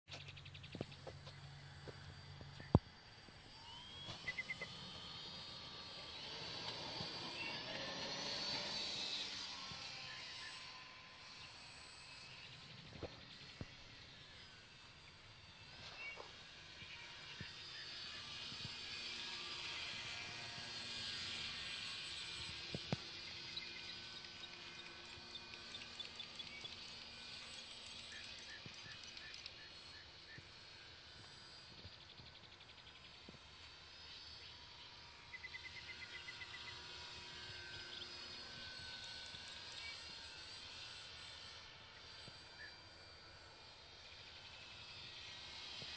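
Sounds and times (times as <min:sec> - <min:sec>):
model airplane motor whine: 0:00.1 - 0:45.9
rapid high chirps: 0:03.6 - 0:04.8.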